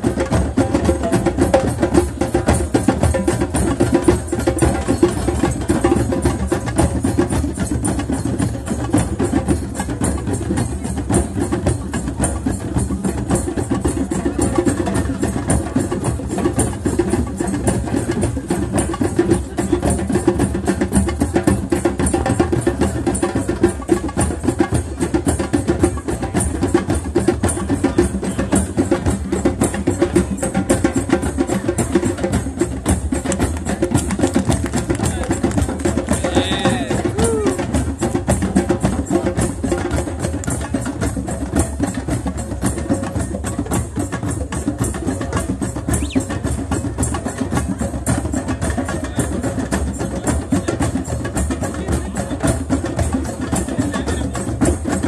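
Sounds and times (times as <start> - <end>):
hand drums playing: 0.0 - 55.0.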